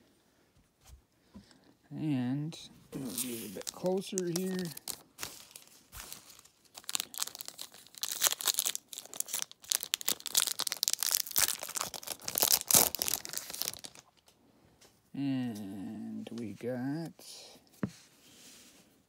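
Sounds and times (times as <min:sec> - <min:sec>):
foil wrapper crinkling and tearing: 0:03.0 - 0:14.3.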